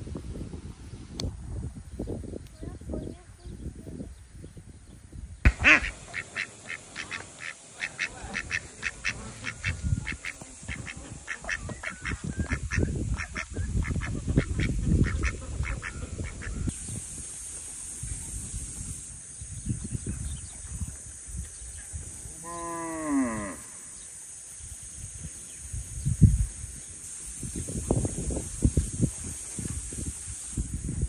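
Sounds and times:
ducks quacking: 0:05.5 - 0:16.7.

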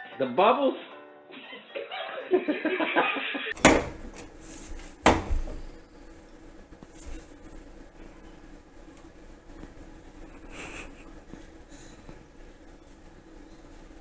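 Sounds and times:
faint refrigerator hum: 0:03.5 - 0:14.0.

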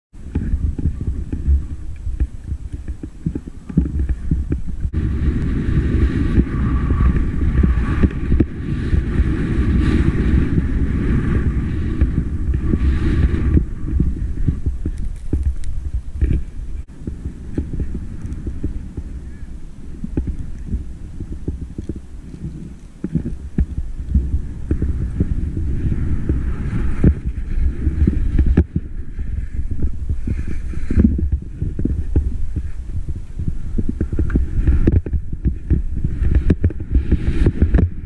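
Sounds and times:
wind buffeting microphone: 0:00.1 - 0:38.0
skis sliding over snow: 0:00.2 - 0:38.0.

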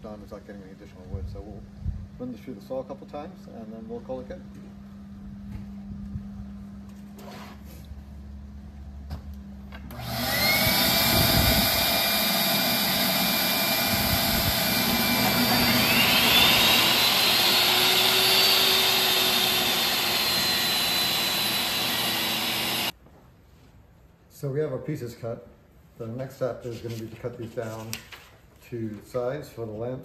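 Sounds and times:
shop vacuum running: 0:09.1 - 0:23.0
table saw motor whine: 0:09.9 - 0:22.9
saw ripping a board: 0:10.0 - 0:22.9.

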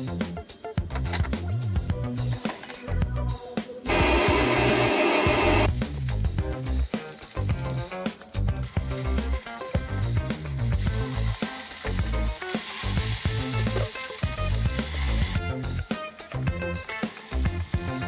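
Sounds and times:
background music: 0:00.0 - 0:18.0
butter sizzling in a pan: 0:03.9 - 0:18.0.

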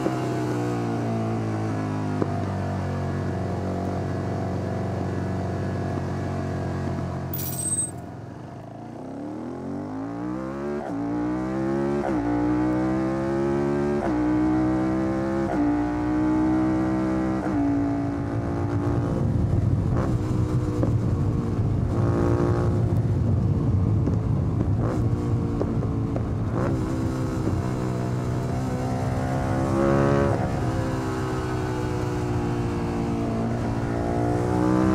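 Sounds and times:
motorcycle engine accelerating: 0:09.0 - 0:34.9.

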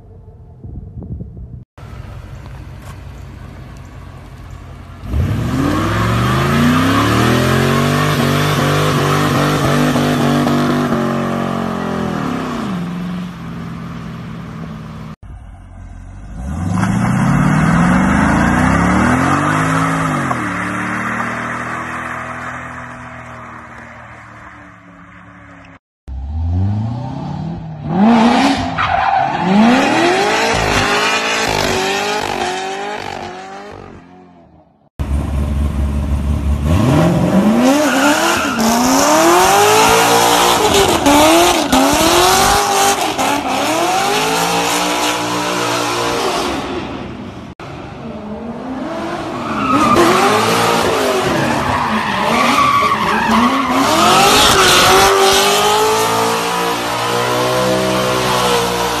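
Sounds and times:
car engines revving hard: 0:05.0 - 0:13.2, 0:16.3 - 0:23.7, 0:26.1 - 0:34.2, 0:35.0 - 0:59.0.

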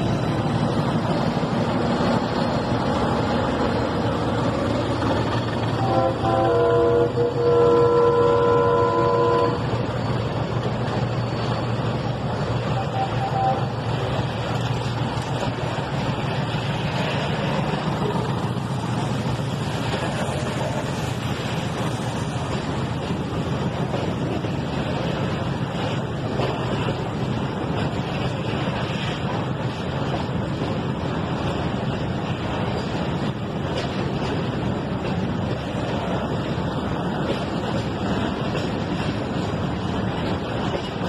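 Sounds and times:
train wheels rumbling on rails: 0:00.0 - 0:41.0
locomotive horn: 0:05.8 - 0:09.7, 0:12.7 - 0:13.8.

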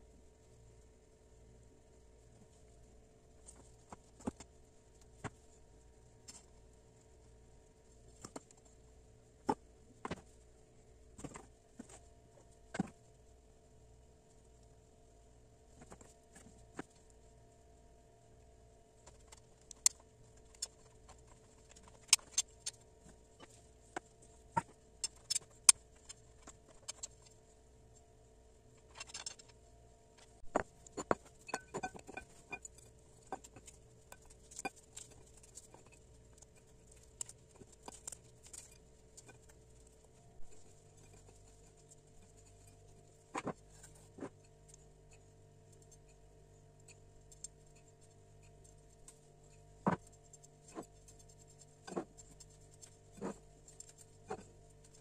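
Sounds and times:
faint steady hum: 0:00.0 - 0:55.0.

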